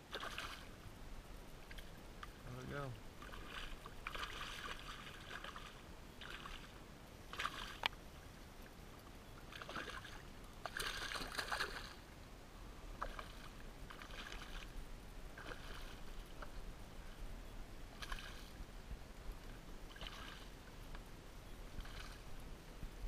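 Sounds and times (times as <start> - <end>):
fish splashing at water surface: 0.1 - 0.7, 3.2 - 6.7, 7.3 - 7.8, 9.5 - 12.0, 13.0 - 14.7, 15.4 - 16.5, 18.0 - 18.5, 19.9 - 20.5.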